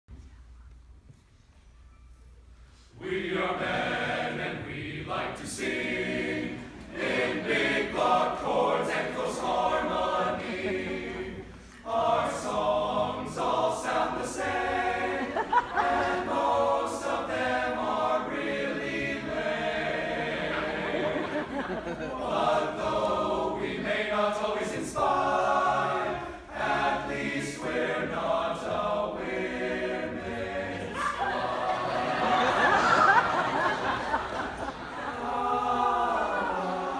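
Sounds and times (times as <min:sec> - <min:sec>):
male a cappella choir singing: 0:03.0 - 0:36.9.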